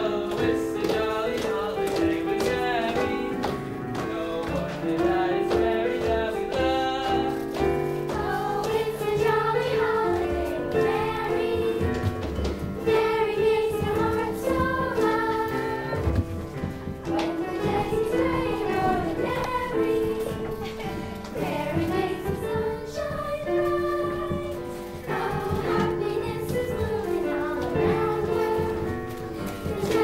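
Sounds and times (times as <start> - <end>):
instrumental accompaniment with beat: 0.0 - 30.0
young voices singing together: 0.0 - 30.0.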